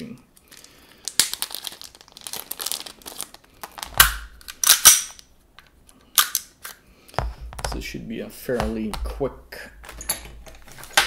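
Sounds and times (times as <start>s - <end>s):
plastic bag crinkling: 0.4s - 4.7s
plastic pistol clacking: 4.0s - 5.2s.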